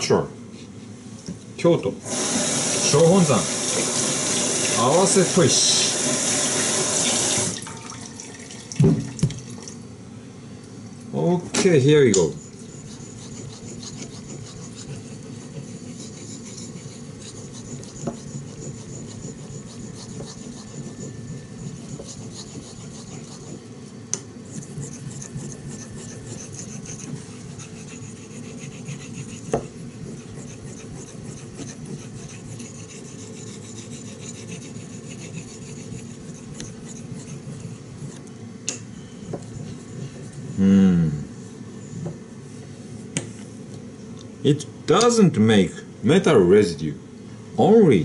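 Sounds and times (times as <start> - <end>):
knife scraping on whetstone: 12.0 - 38.3, 39.0 - 40.6.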